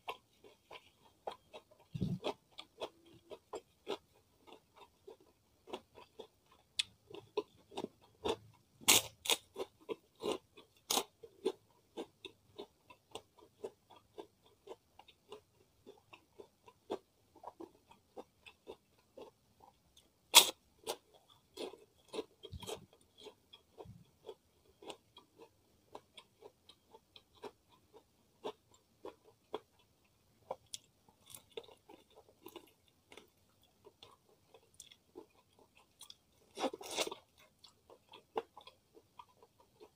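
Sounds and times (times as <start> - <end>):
quiet chewing: 0.0 - 39.9
crunching crispy crackers: 30.5 - 39.9.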